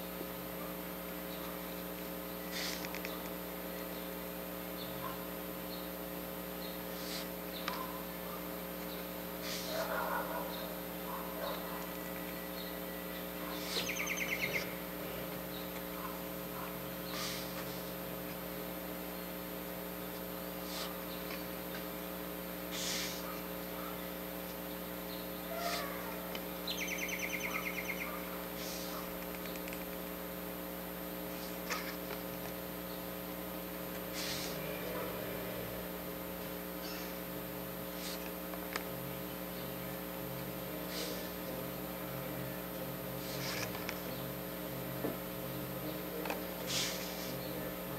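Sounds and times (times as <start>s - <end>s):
electrical hum: 0.0s - 47.9s
high chirping trills: 12.0s - 15.7s, 23.8s - 28.2s.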